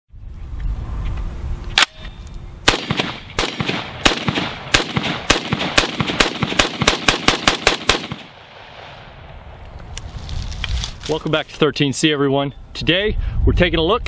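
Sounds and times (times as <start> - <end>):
rifle gunshots: 2.6 - 9.6.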